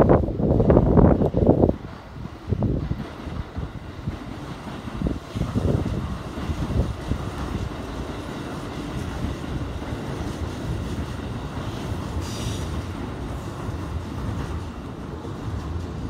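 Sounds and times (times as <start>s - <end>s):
electric train rumbling: 0.0s - 16.0s
high hiss: 7.6s - 13.7s.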